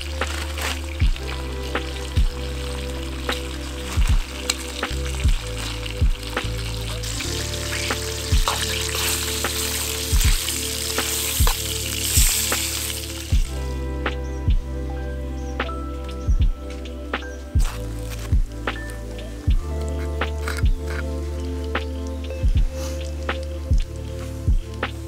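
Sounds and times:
bacon sizzling in a frying pan: 0.0s - 13.4s
music with thudding beat: 0.0s - 14.8s, 15.6s - 21.1s, 21.7s - 25.0s.

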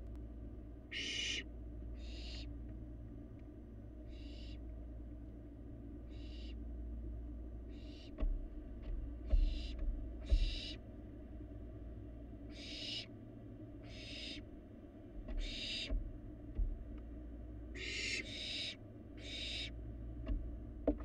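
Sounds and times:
low steady hum: 0.0s - 21.0s
young owl rasping hiss calls: 0.9s - 2.5s, 4.1s - 4.6s, 6.1s - 6.6s, 7.7s - 8.1s, 9.4s - 10.8s, 12.5s - 13.1s, 13.8s - 14.5s, 15.4s - 16.0s, 17.7s - 19.8s.

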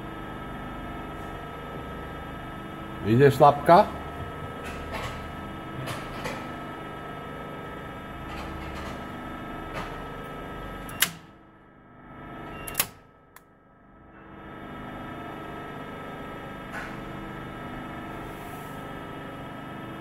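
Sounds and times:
electrical hum: 0.0s - 20.0s
relay clicks: 10.9s - 11.3s.

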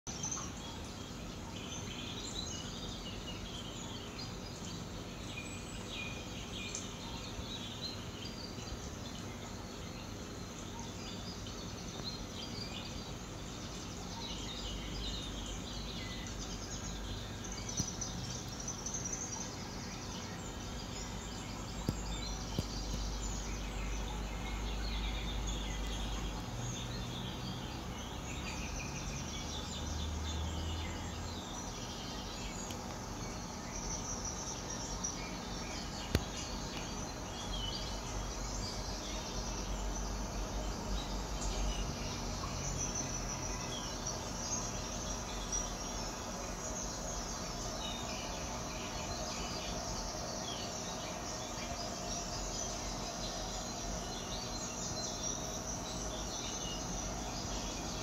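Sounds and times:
birds chirping: 0.1s - 58.0s
insects chirping: 0.1s - 58.0s
steady low hum: 0.2s - 58.0s
faint clicks: 32.6s - 33.0s.

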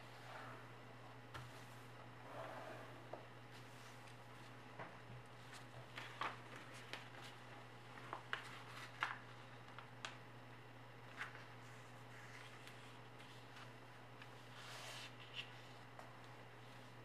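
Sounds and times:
steady low hum: 0.0s - 17.0s
paper crinkling: 5.4s - 10.2s.

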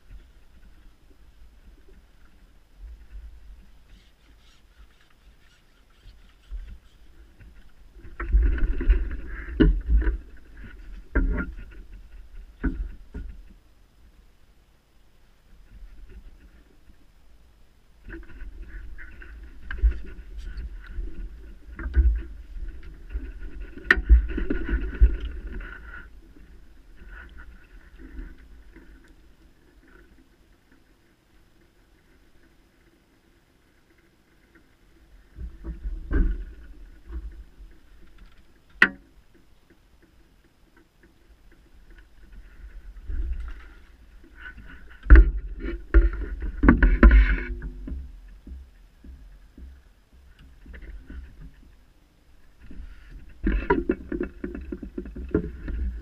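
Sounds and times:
fishing tackle rustling: 0.0s - 13.0s.

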